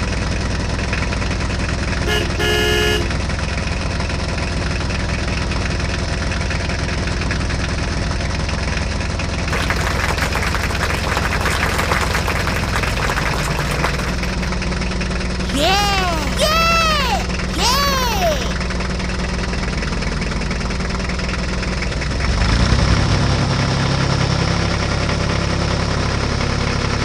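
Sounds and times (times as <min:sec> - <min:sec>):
horn toots: 0:02.1 - 0:03.2.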